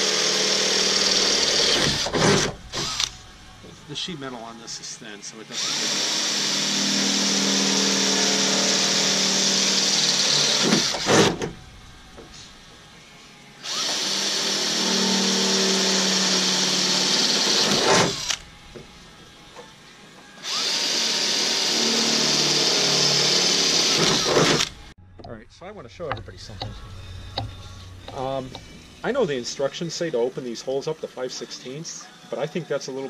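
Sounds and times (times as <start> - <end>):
cordless drill boring through steel: 0.0 - 3.2, 5.5 - 12.4, 13.6 - 18.5, 20.4 - 24.8.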